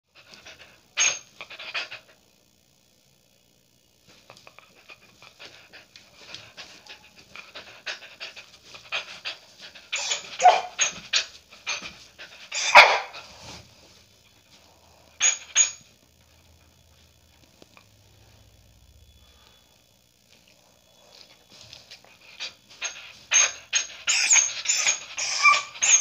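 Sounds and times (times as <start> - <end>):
dog panting: 0.1 - 2.2, 4.3 - 13.4, 21.1 - 26.0
dog yipping: 1.0 - 1.3, 9.9 - 11.8, 12.5 - 13.2, 15.2 - 15.8, 22.8 - 26.0.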